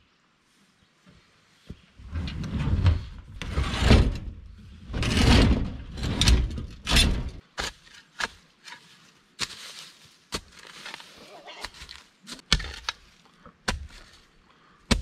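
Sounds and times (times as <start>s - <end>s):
plastic tank bumping and scraping: 2.4s - 7.4s.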